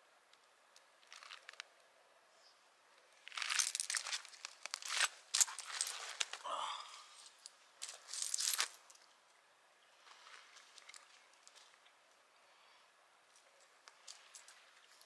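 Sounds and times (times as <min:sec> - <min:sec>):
crinkling handling noise: 0:00.3 - 0:01.9, 0:03.0 - 0:06.5, 0:07.2 - 0:09.1, 0:10.0 - 0:12.2, 0:13.3 - 0:15.0.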